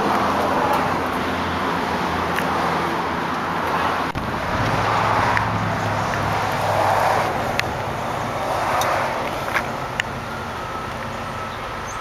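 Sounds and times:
vehicle low hum: 0.0s - 12.0s
rushing sound: 4.1s - 9.9s.

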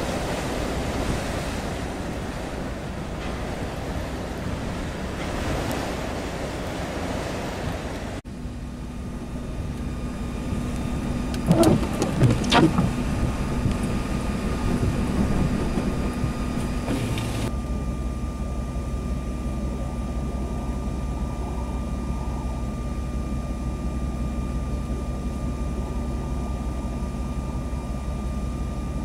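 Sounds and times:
blizzard wind buffeting microphone: 0.0s - 8.2s, 8.9s - 17.5s
faint steady whine: 8.2s - 29.0s.

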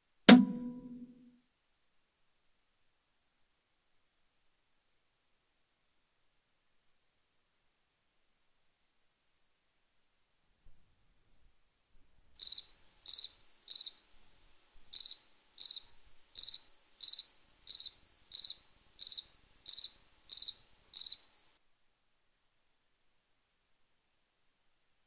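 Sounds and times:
cricket chirping: 12.4s - 14.2s, 14.9s - 21.4s.

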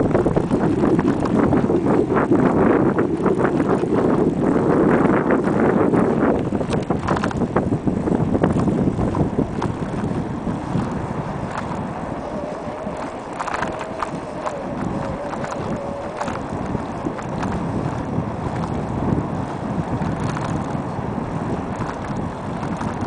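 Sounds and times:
bike knocking and rattling: 0.0s - 23.0s
wind buffeting microphone: 0.0s - 23.0s
faint wavering tone: 12.2s - 16.5s.

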